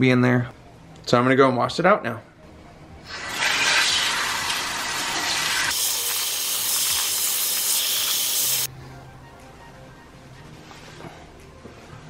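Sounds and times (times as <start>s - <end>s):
water spraying from hand sprayer: 5.7s - 8.7s.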